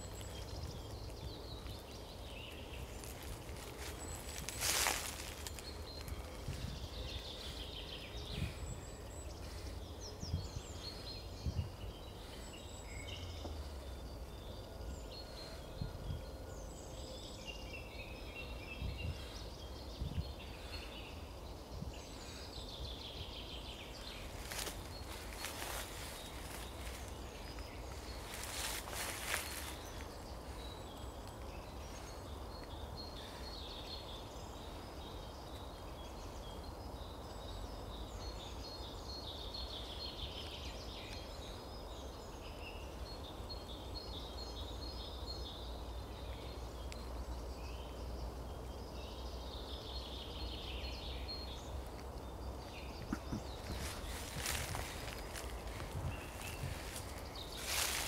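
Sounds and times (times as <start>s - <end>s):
songbirds chirping: 0.0s - 58.0s.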